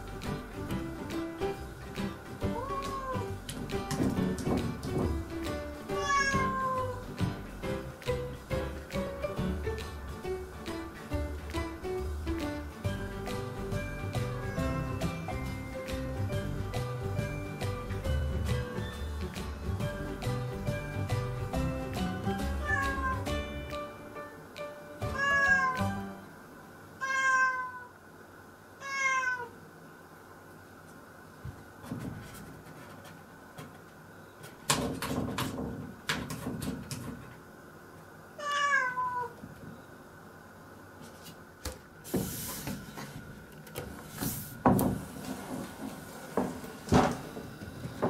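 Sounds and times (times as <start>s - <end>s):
cat meowing: 2.5s - 3.4s, 5.9s - 7.0s, 22.6s - 23.3s, 25.0s - 25.9s, 27.0s - 28.0s, 28.8s - 29.6s, 38.4s - 39.4s.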